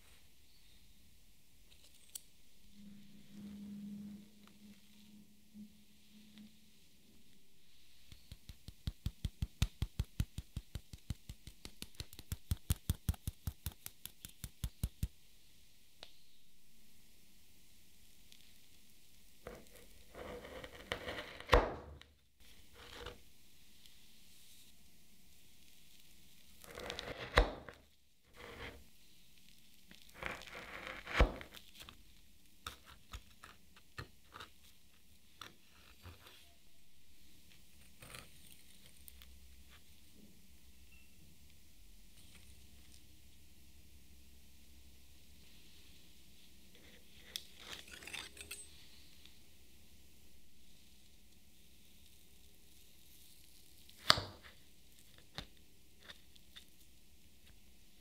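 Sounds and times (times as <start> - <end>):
knife slicing through cheesecake: 19.5 - 21.8, 26.6 - 28.8, 30.2 - 31.6, 47.1 - 48.6.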